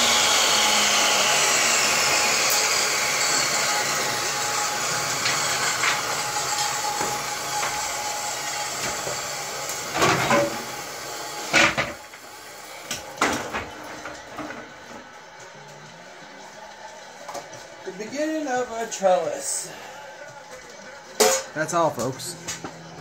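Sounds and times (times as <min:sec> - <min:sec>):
table saw whirring down: 0:00.0 - 0:15.2.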